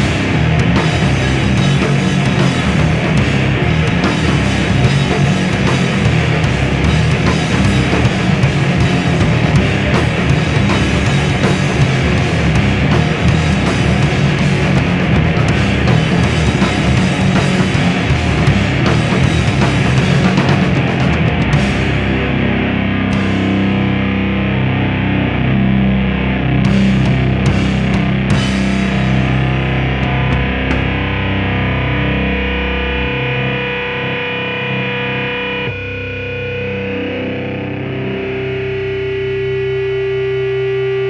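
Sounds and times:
drum kit: 0.0s - 24.1s, 26.6s - 31.4s
electric guitars: 0.0s - 41.0s.

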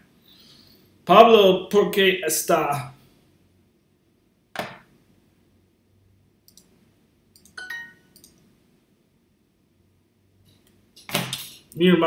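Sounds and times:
computer mouse clicks: 6.5s - 6.7s, 7.4s - 7.6s, 8.2s - 8.4s.

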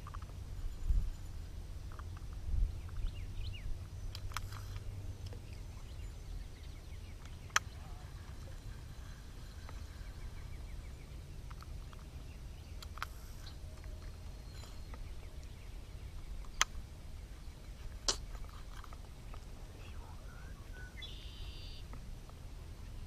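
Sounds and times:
low microphone rumble: 0.0s - 21.2s
faint bird chirps: 2.7s - 17.9s, 19.2s - 21.9s.

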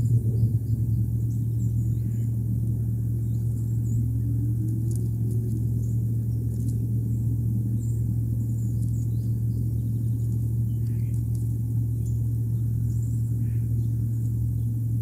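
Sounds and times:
faint rising tone: 0.0s - 11.4s
faint high chirps and ticks: 0.0s - 15.0s
steady low rumble: 0.0s - 15.0s.

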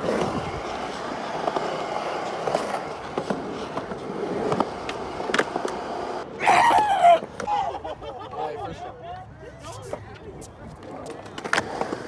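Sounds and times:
skateboard clacks: 0.0s - 6.2s, 10.4s - 12.0s
skateboard wheels rolling: 0.0s - 8.2s, 9.2s - 12.0s.

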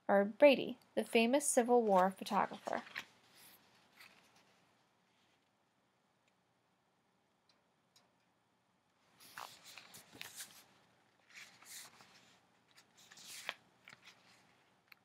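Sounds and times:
paper rustling: 1.8s - 5.5s, 9.2s - 15.0s.

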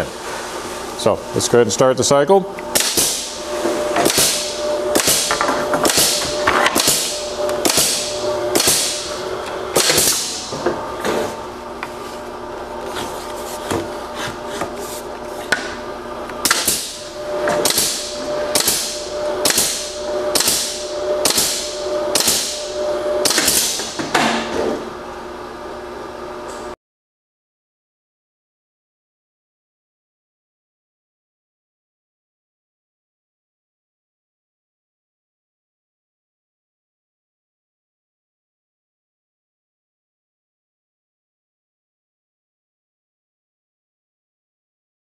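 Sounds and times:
steady machine hum: 0.0s - 26.8s
pneumatic nail guns firing: 2.7s - 11.4s, 16.4s - 24.6s.

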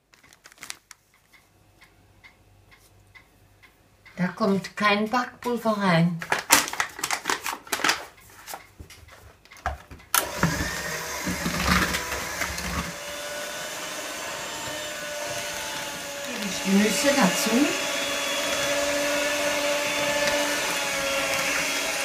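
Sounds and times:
paper flour bag rustling: 0.0s - 1.1s, 6.2s - 8.6s
electric hand mixer running: 10.2s - 22.0s.

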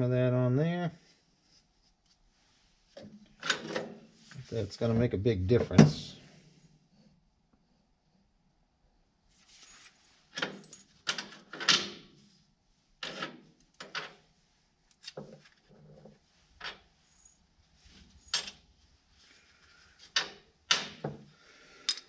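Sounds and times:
metal tools clinking and knocking: 18.2s - 18.6s, 21.8s - 22.0s.

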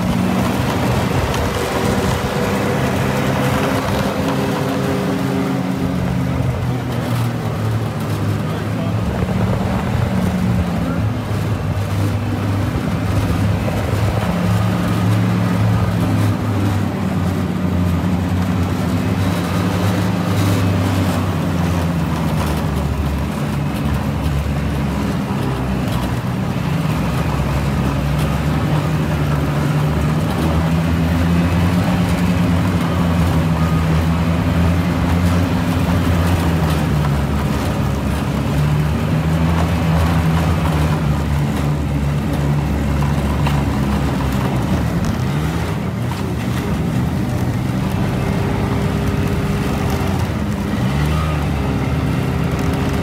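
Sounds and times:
snowmobile engine running: 0.0s - 53.0s.

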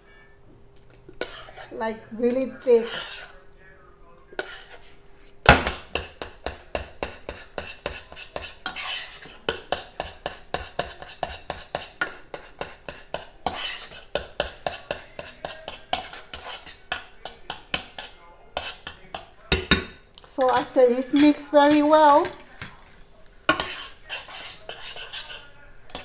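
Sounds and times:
spoon scraping saucepan: 1.1s - 3.4s, 4.3s - 5.0s, 5.7s - 26.0s
hard knock on pan: 5.5s - 7.4s
spoon clinking in saucepan: 18.0s - 26.0s.

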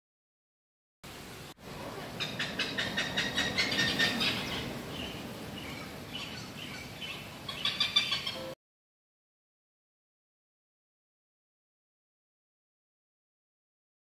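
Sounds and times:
hornbill cackling: 2.0s - 8.5s.

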